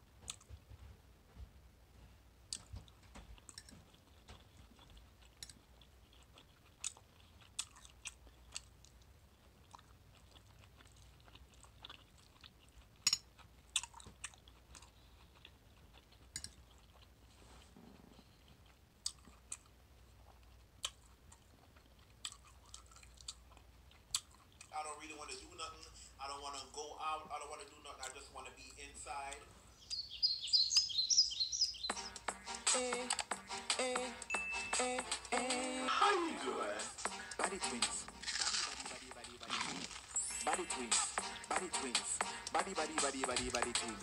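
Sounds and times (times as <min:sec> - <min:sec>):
person chewing food: 0:00.0 - 0:00.8, 0:02.4 - 0:24.7, 0:36.4 - 0:44.0.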